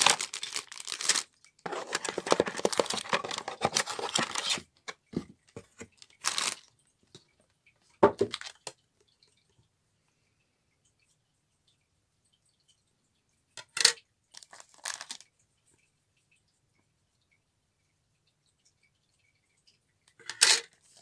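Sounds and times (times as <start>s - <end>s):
plastic bags crinkling: 0.0s - 4.6s, 5.8s - 6.7s, 8.0s - 8.7s, 14.3s - 15.3s
plastic pieces clicking: 0.0s - 4.6s.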